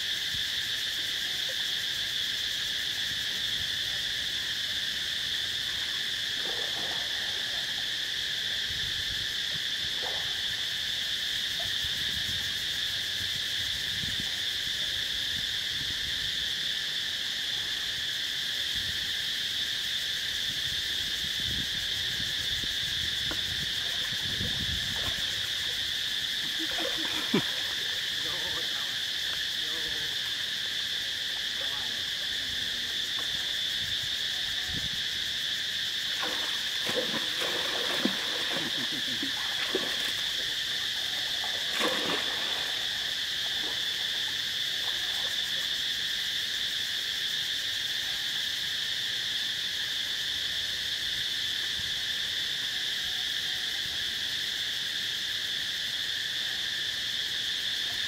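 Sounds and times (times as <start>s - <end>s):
insect chorus drone: 0.0s - 58.0s
faint low splashing: 5.7s - 7.9s, 22.9s - 30.4s, 36.0s - 45.3s.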